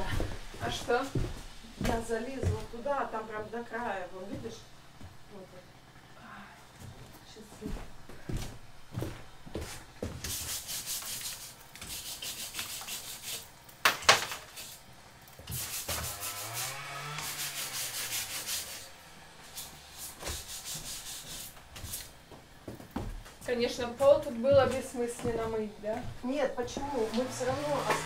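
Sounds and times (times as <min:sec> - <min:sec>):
hand tool rubbing against wall: 0:10.2 - 0:13.6, 0:14.2 - 0:22.2, 0:26.7 - 0:28.0.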